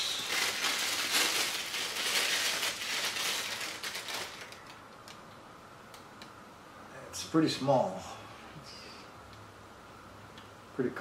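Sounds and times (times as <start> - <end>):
plastic wrapping crinkling: 0.0 - 5.2.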